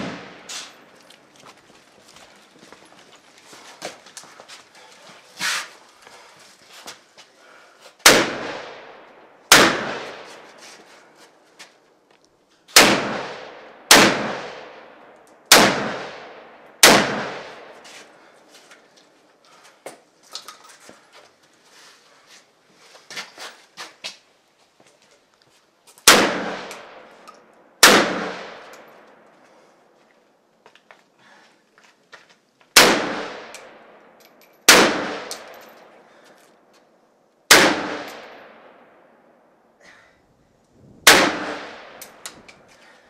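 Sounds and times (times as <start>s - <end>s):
rifle shots echoing: 0.0s - 0.9s, 8.0s - 10.5s, 12.8s - 17.8s, 26.0s - 27.2s, 27.8s - 29.2s, 32.8s - 34.0s, 34.7s - 36.0s, 37.5s - 39.0s, 41.0s - 42.2s.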